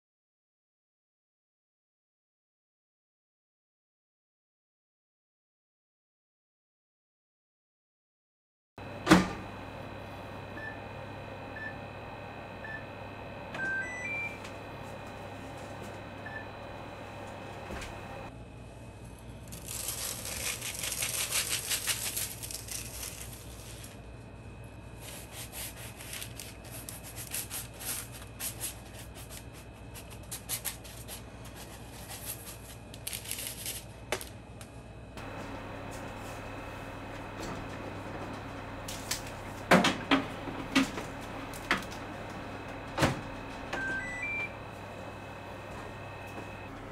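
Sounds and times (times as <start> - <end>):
microwave button beeps: 10.5 - 12.0, 12.6 - 14.7, 16.0 - 18.3, 43.0 - 46.7.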